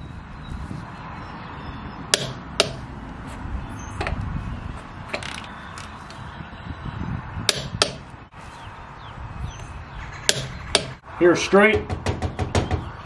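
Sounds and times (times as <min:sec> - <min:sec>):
sharp metal clicks: 0:02.1 - 0:02.8.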